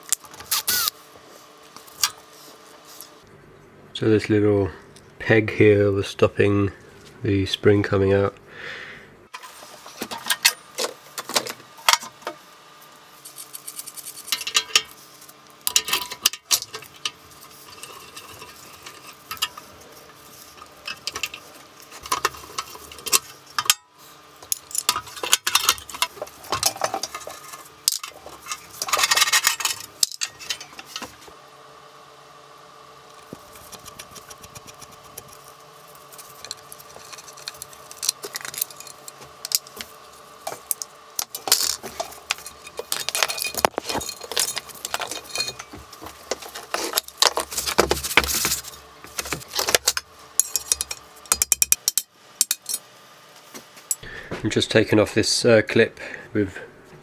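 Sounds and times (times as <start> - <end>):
metal parts and tools clinking: 13.3 - 14.9, 15.7 - 19.7, 20.5 - 31.1, 36.2 - 52.8.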